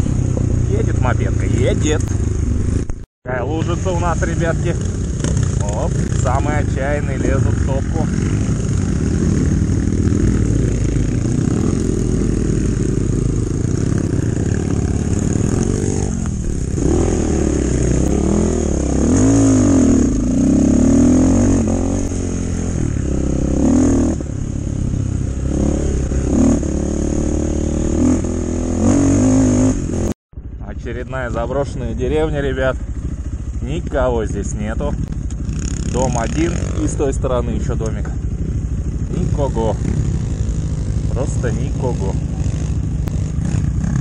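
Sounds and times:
motorcycle engine revving: 0.0s - 44.0s.

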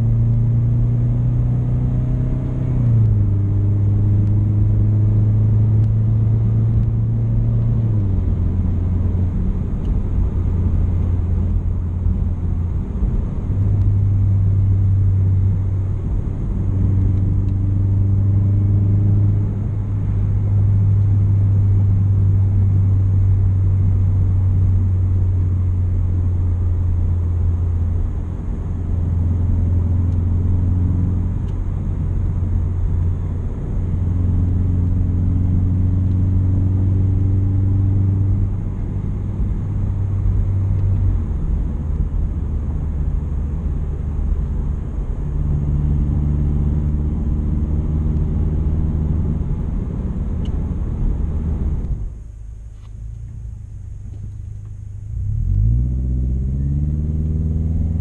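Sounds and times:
low exhaust drone: 0.0s - 58.0s
road noise: 0.0s - 58.0s.

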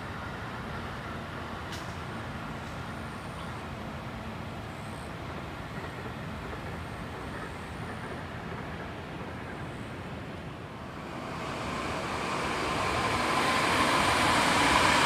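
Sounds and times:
distant vehicles rumbling: 5.7s - 15.0s.

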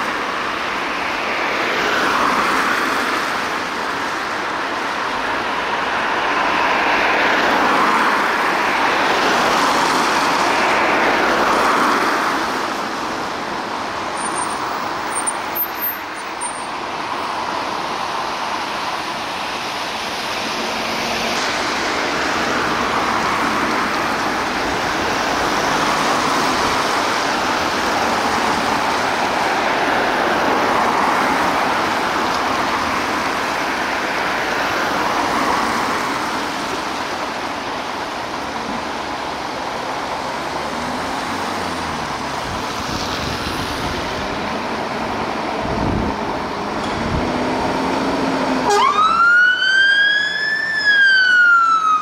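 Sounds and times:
traffic on a wet road: 0.0s - 52.0s
siren wailing: 48.6s - 52.0s.

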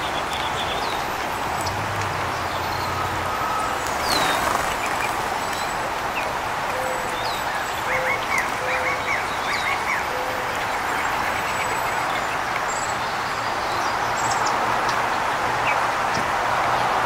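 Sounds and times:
birds chirping: 0.0s - 15.9s
birds cooing: 2.8s - 5.9s.

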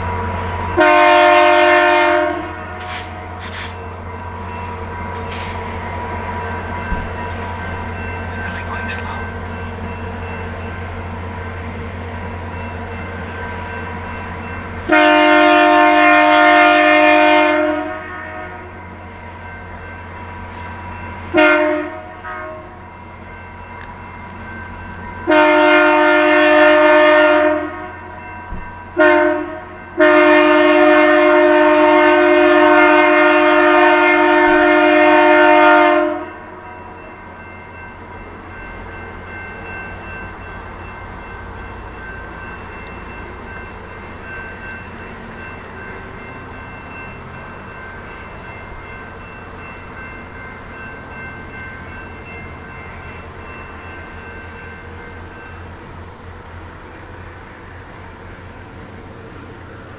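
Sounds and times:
locomotive air horn blasts: 0.8s - 3.8s, 14.9s - 18.8s, 21.3s - 22.8s, 25.3s - 28.0s, 29.0s - 36.5s.

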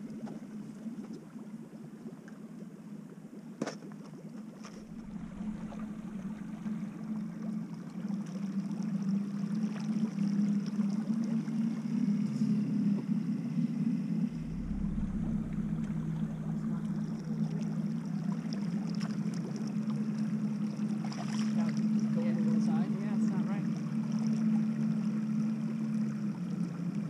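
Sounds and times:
river water rushing past boat: 4.8s - 8.5s, 14.3s - 26.3s.

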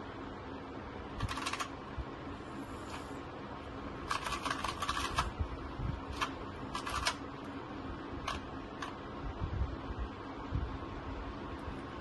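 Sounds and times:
rubik's cube clicking: 1.2s - 1.8s, 4.0s - 5.3s, 6.1s - 7.2s, 8.2s - 9.0s.

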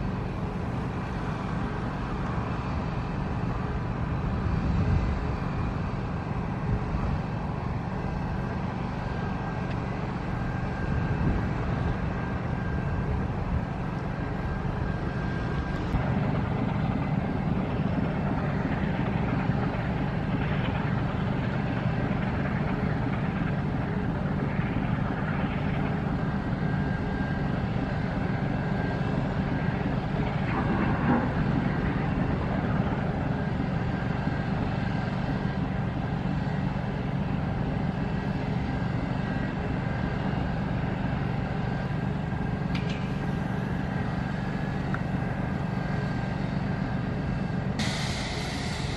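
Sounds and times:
boat diesel engine droning: 0.0s - 48.9s
rushing noise: 47.8s - 48.9s.

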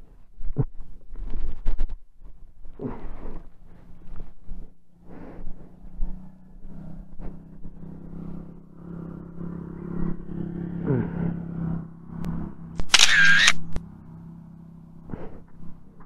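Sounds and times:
short clicks: 12.8s - 13.8s.

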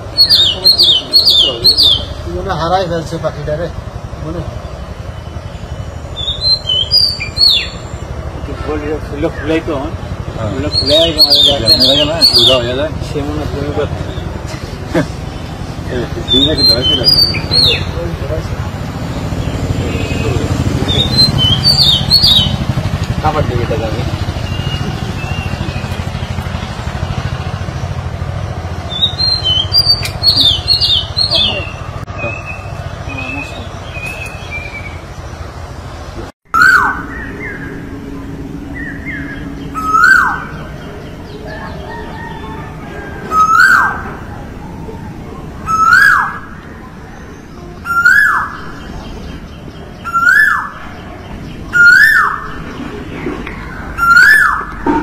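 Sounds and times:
loud low steady rumble: 0.0s - 47.9s, 48.5s - 55.0s
bird whistling song: 0.1s - 2.2s, 5.0s - 8.2s, 10.7s - 12.7s, 16.3s - 17.9s, 19.4s - 22.6s, 28.9s - 35.1s, 36.5s - 38.0s, 38.7s - 44.2s, 45.6s - 55.0s
koel calling: 51.7s - 55.0s.

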